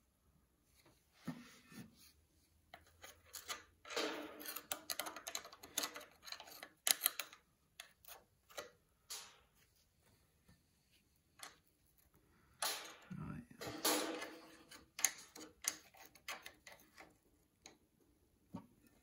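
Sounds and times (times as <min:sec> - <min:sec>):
screwdriver scraping metal: 0:02.8 - 0:08.6.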